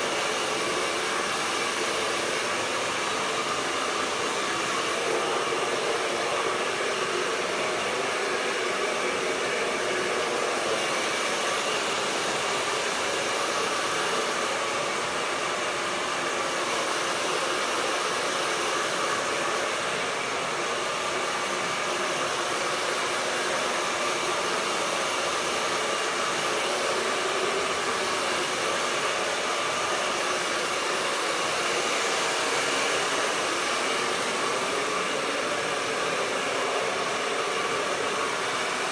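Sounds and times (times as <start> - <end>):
hair dryer running: 0.0 - 38.9.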